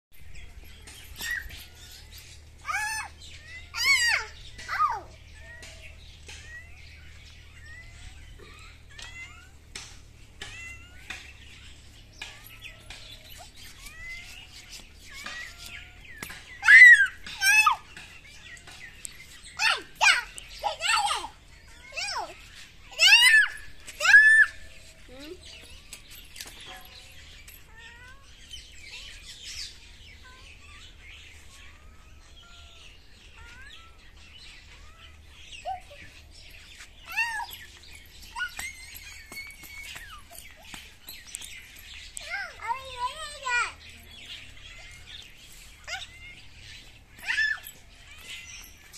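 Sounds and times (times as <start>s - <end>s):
small bird chirps: 0.2s - 48.9s
cat meowing: 31.6s - 35.2s.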